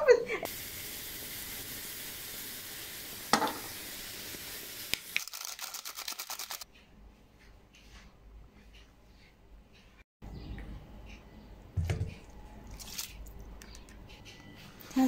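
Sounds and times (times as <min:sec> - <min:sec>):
mushrooms sizzling in a frying pan: 0:00.5 - 0:05.4.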